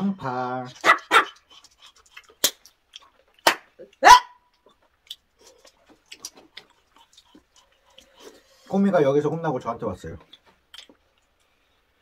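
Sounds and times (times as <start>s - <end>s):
dog barking: 0.7s - 1.4s, 4.0s - 4.5s.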